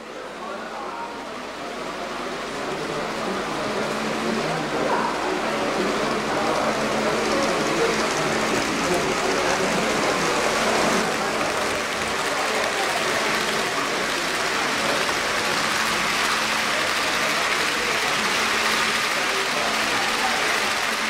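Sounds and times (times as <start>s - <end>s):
crowd chatter: 0.0s - 21.0s
model train motor humming: 2.0s - 21.0s
wheels clicking over rails: 5.4s - 21.0s.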